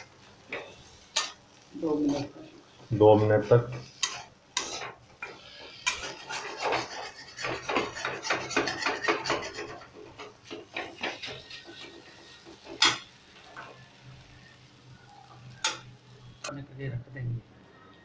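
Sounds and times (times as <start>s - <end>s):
metal spatula scraping a pan: 0.4s - 14.6s.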